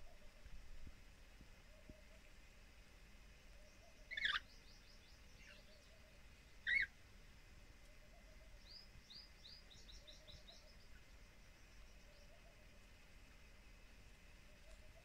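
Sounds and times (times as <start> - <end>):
lorikeets calling: 3.6 - 6.9.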